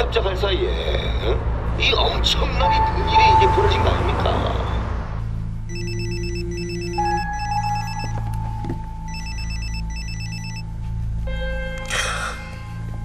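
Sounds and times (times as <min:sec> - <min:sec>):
mobile phone ringing: 0:05.7 - 0:10.7.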